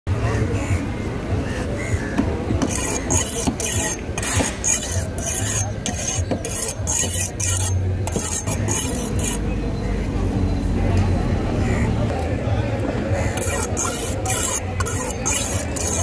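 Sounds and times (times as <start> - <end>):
rhythmic rasping scrapes: 2.5 - 9.5, 13.2 - 16.0.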